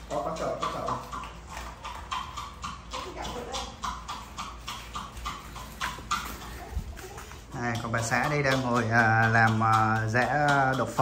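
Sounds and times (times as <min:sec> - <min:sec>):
wooden pestle pounding in bowl: 0:00.0 - 0:11.0.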